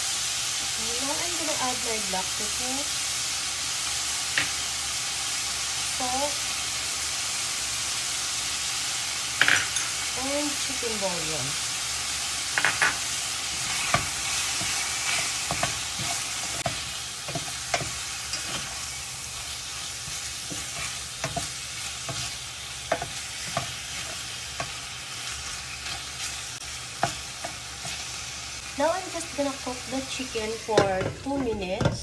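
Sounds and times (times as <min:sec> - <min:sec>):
food sizzling in a skillet: 0:00.0 - 0:31.8
spatula scraping a pan: 0:12.5 - 0:28.2.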